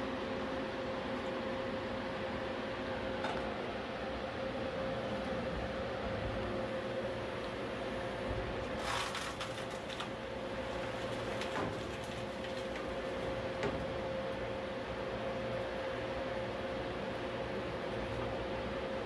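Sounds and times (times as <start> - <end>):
guillotine motor hum and whine: 0.0 - 19.0
metal crunching and scraping: 8.7 - 13.4.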